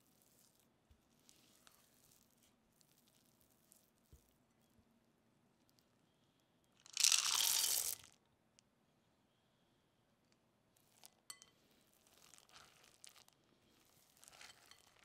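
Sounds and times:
chocolate chips poured into glass bowl: 0:06.9 - 0:08.2, 0:12.0 - 0:13.3, 0:13.9 - 0:15.0.

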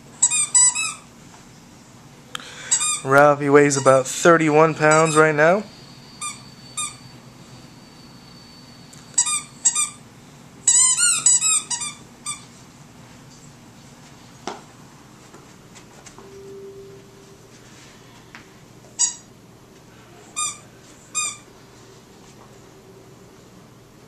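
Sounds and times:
dog toy squeaking: 0:00.2 - 0:01.1, 0:02.7 - 0:04.0, 0:04.8 - 0:05.4, 0:06.2 - 0:07.1, 0:09.2 - 0:10.0, 0:10.7 - 0:12.5, 0:19.0 - 0:19.3, 0:20.4 - 0:21.4.

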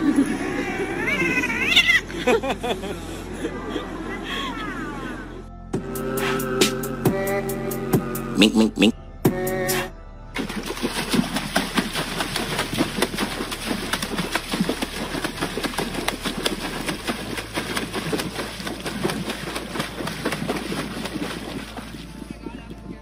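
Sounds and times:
dog splashing in water: 0:10.4 - 0:22.2.

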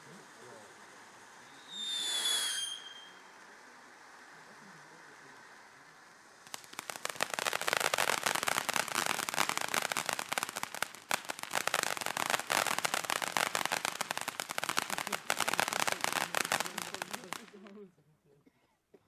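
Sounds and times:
firework fountain crackling: 0:00.0 - 0:18.0.

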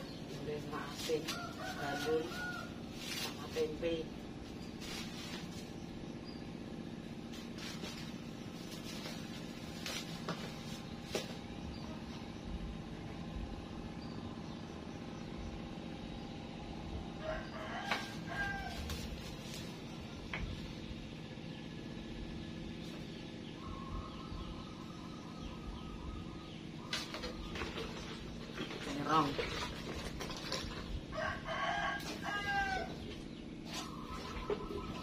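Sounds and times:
steady low hum: 0:00.0 - 0:35.0
rooster crowing: 0:01.3 - 0:03.1, 0:17.2 - 0:19.0, 0:31.1 - 0:33.1.

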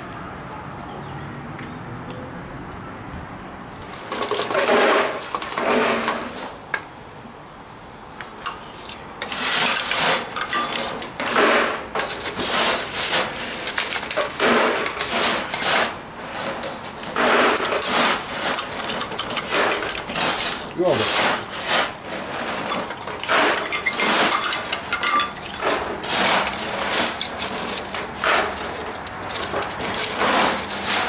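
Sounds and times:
coal clattering in metal scoop: 0:03.8 - 0:06.6, 0:09.2 - 0:31.0.

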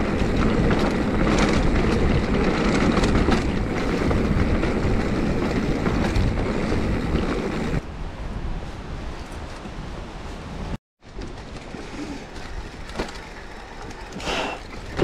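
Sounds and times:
bike rattling and knocking: 0:00.0 - 0:07.8, 0:11.0 - 0:15.0
bike tyres rumbling over trail: 0:00.0 - 0:08.8, 0:09.4 - 0:15.0
wind rushing over microphone: 0:00.0 - 0:10.8.

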